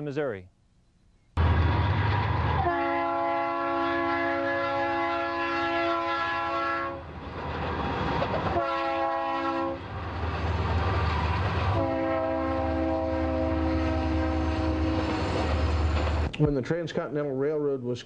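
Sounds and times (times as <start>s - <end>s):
train rumbling by: 1.4s - 16.3s
train air horn blasts: 1.9s - 7.0s, 8.5s - 9.8s, 11.7s - 15.5s.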